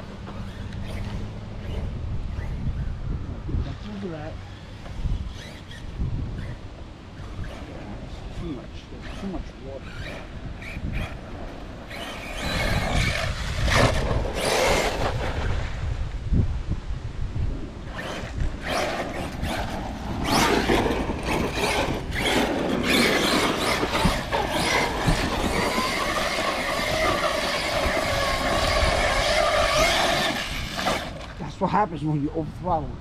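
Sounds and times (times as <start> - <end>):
rc truck motor whining: 0.0 - 3.1, 4.8 - 6.6, 9.0 - 15.8, 17.8 - 31.4.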